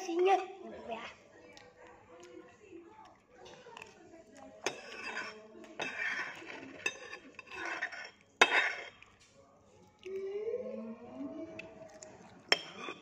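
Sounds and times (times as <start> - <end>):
metal spoon scraping a dish: 4.6 - 9.0, 12.5 - 13.0.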